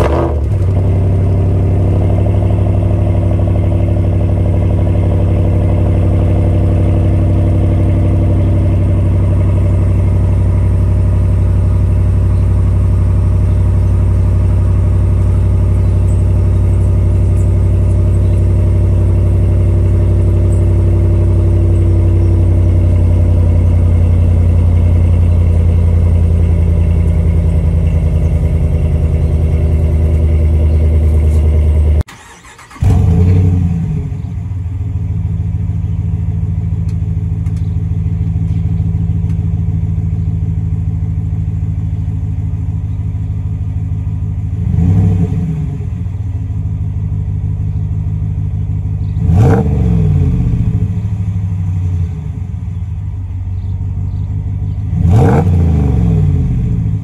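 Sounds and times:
engine revving: 0:00.0 - 0:10.0, 0:15.7 - 0:34.3, 0:44.5 - 0:46.2, 0:49.0 - 0:52.4, 0:54.8 - 0:57.0
truck engine idling: 0:00.4 - 0:44.6, 0:45.9 - 0:49.6, 0:50.5 - 0:55.2
engine starting: 0:32.0 - 0:33.6.

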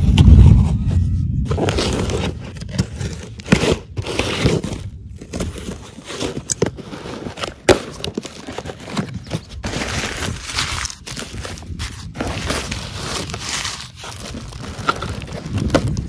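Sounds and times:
cardboard flaps scraping and tearing: 0:01.5 - 0:16.0
newspaper crinkling: 0:01.5 - 0:16.0.

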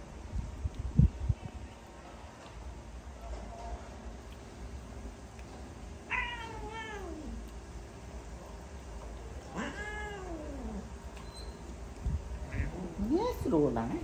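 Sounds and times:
cat meowing: 0:06.1 - 0:07.4, 0:09.5 - 0:10.9.

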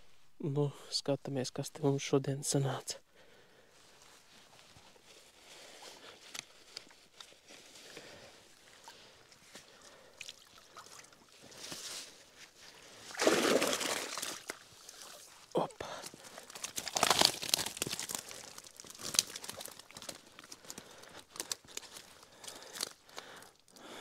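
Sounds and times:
plastic sheet crinkling: 0:16.4 - 0:22.9.

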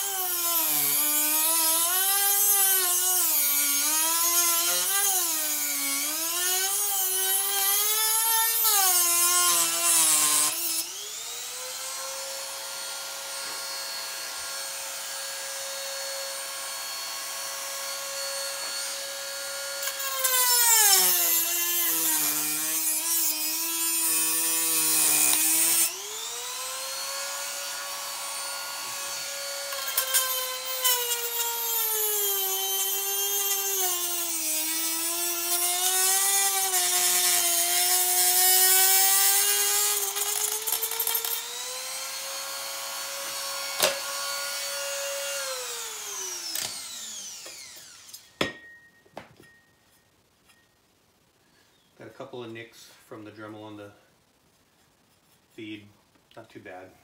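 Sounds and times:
rotary tool whining: 0:00.0 - 0:48.4
rotary tool grinding tire: 0:28.7 - 0:41.6.

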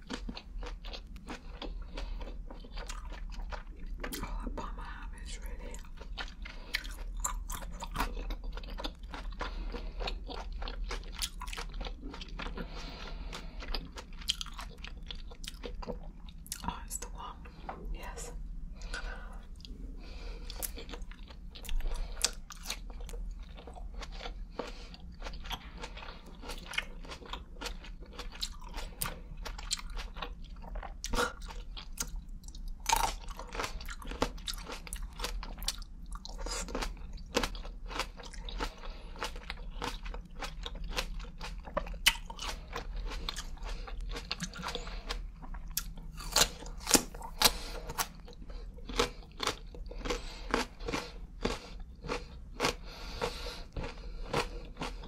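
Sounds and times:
crunchy chewing of grapes: 0:00.0 - 0:55.0.

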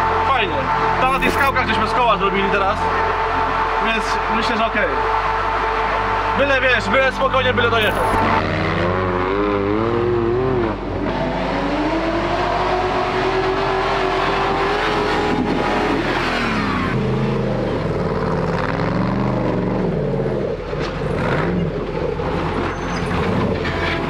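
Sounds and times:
off-road engine revving: 0:07.8 - 0:24.0.

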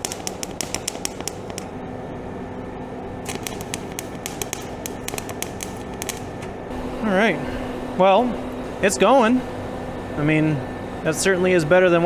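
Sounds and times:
welder arc crackling: 0:00.0 - 0:01.7, 0:03.2 - 0:06.7.

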